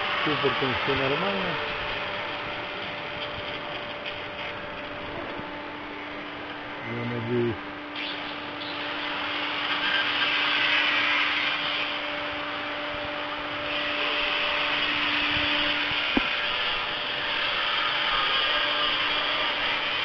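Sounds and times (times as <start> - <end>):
power tool rasping hiss: 8.0 - 12.2, 13.6 - 20.0.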